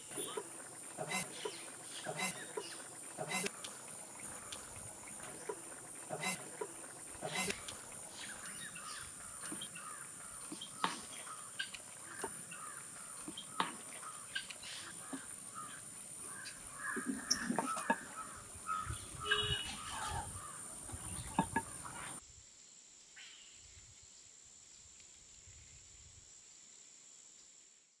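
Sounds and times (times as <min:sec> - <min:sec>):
steady high whine: 0:00.0 - 0:10.4
crows cawing: 0:00.0 - 0:22.2.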